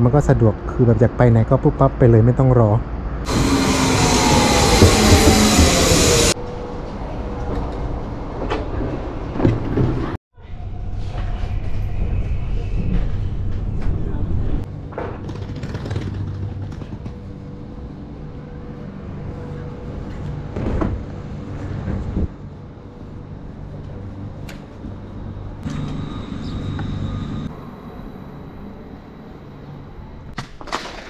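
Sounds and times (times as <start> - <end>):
vehicle low hum: 2.8 - 10.1, 16.1 - 30.4
high steady tone: 3.3 - 6.4.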